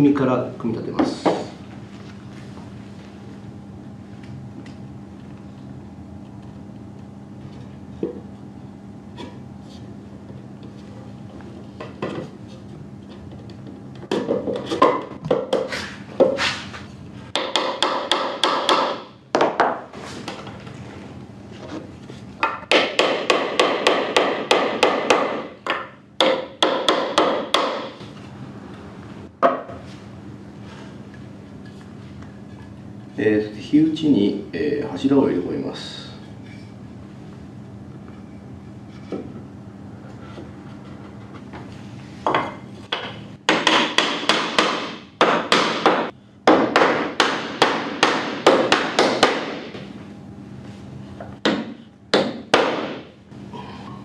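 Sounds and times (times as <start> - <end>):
hammer knocking on wood: 22.4 - 27.9, 42.3 - 49.8.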